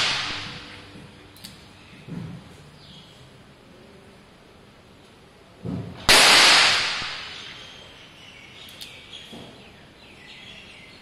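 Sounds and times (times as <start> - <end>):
revolver gunshot: 0.0 - 0.6, 6.1 - 7.5.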